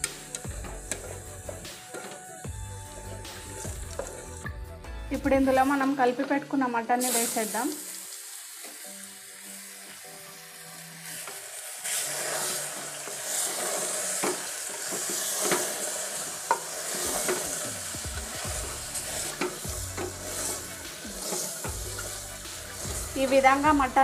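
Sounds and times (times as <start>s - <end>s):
spatula scraping a pot: 0.0s - 4.4s, 11.8s - 23.6s
meat sizzling in oil: 7.0s - 24.0s.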